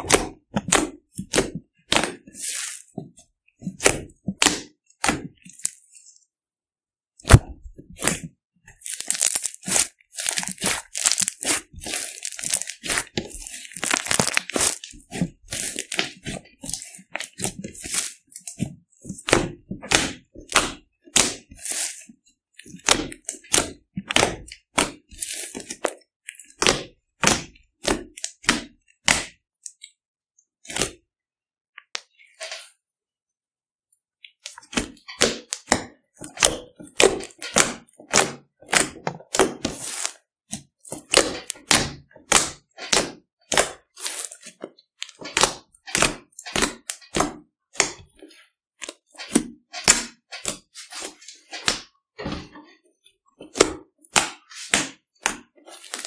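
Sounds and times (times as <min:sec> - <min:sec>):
sticky slime popping: 0:07.2 - 0:22.0.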